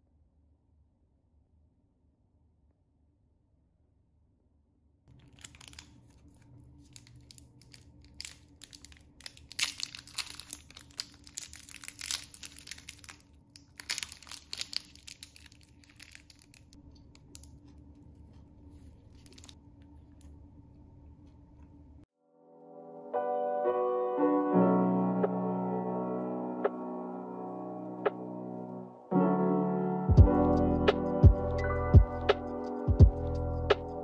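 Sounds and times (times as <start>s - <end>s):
foil wrapper crinkling: 5.1s - 17.5s, 18.8s - 19.6s.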